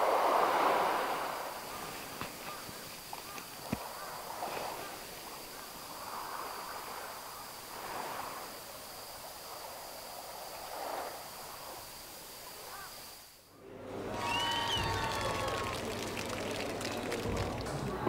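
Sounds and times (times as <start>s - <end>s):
waves washing on shore: 0.0s - 13.2s
insects trilling: 0.1s - 13.5s.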